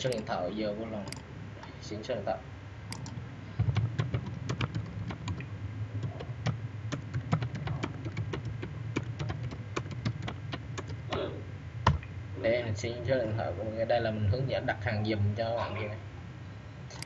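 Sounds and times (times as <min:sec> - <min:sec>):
steady low hum: 0:00.0 - 0:17.0
keyboard key clicks: 0:02.9 - 0:05.4, 0:06.0 - 0:11.2.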